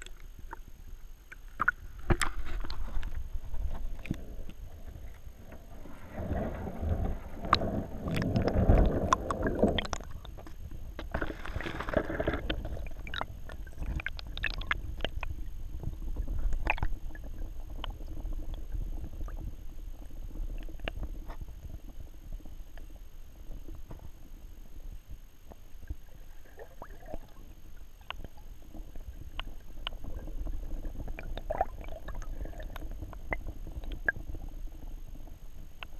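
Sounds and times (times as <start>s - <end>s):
muffled underwater water rushing: 0.0s - 35.9s.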